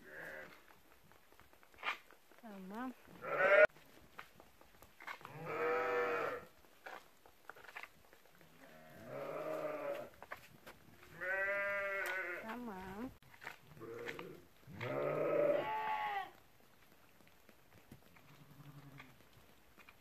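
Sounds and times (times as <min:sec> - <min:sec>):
sheep bleating: 0:00.0 - 0:00.6, 0:03.2 - 0:03.7, 0:05.2 - 0:06.5, 0:08.5 - 0:10.1, 0:11.1 - 0:12.6, 0:13.7 - 0:16.4, 0:18.2 - 0:19.2.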